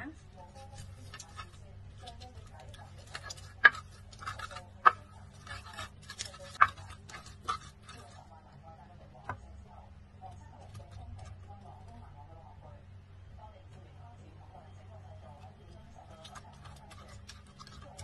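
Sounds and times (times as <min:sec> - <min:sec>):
pestle grinding in mortar: 0:00.5 - 0:08.2, 0:16.0 - 0:18.0.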